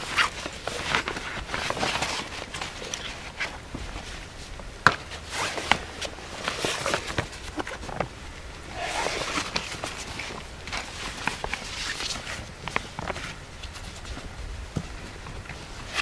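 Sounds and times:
nylon fabric rustling: 0.0 - 16.0
tent poles clicking: 4.8 - 8.0, 8.6 - 14.2.

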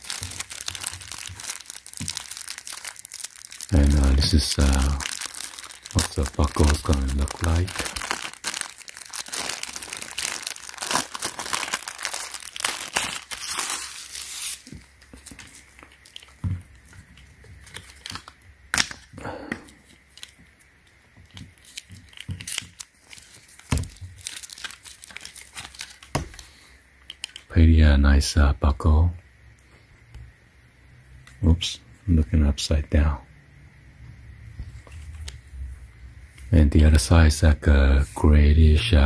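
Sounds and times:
plastic wrapping crinkling and tearing: 0.0 - 26.5, 27.1 - 27.5.

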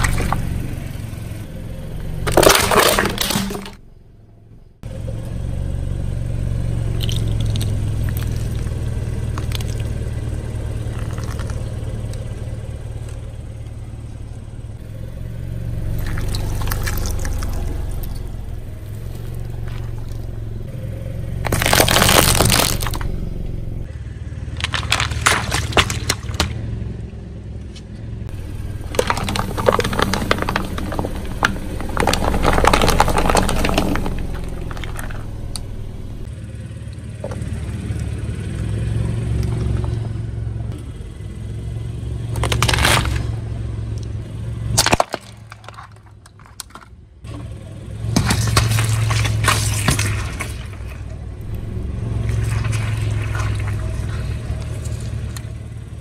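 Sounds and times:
car engine humming: 0.0 - 56.0
tyre crushing objects: 2.2 - 3.8, 21.3 - 23.3, 24.5 - 26.7, 28.4 - 35.6, 42.3 - 43.4, 44.7 - 46.9, 48.0 - 55.5
paper cups crunching: 2.3 - 3.8, 10.8 - 11.7, 21.4 - 23.1, 24.5 - 26.6, 28.4 - 35.3, 42.4 - 43.3, 48.1 - 55.5.

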